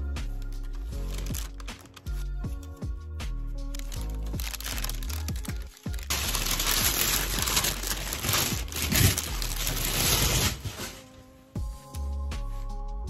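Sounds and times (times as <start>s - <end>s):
background music: 0.0s - 13.0s
shopping bags crinkling and rustling: 0.6s - 2.3s, 3.7s - 11.2s.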